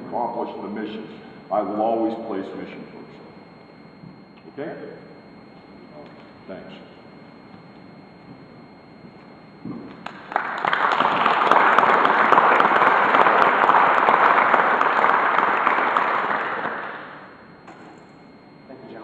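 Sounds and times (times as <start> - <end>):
audience applauding: 10.0 - 17.2.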